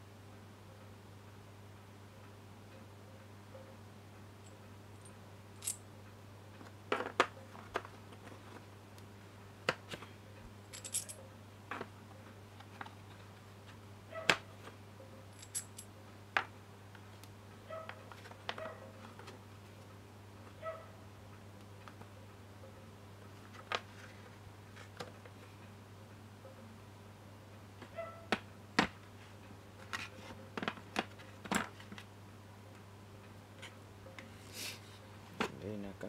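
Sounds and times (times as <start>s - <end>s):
metal tools clicking and clinking: 5.6s - 5.8s, 10.7s - 11.2s, 15.4s - 15.9s.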